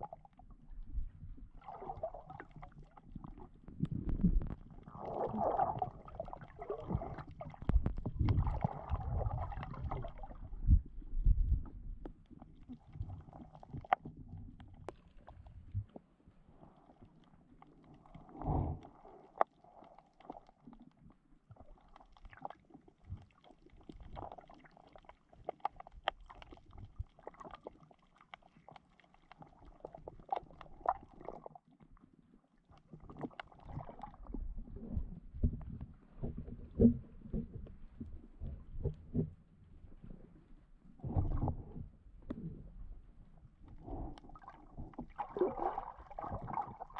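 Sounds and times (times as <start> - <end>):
muffled underwater gurgling: 1.1 - 11.9, 43.7 - 46.9.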